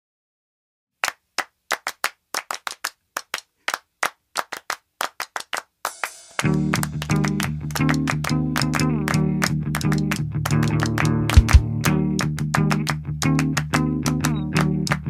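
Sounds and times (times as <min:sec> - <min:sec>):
hand claps: 0:01.0 - 0:15.0.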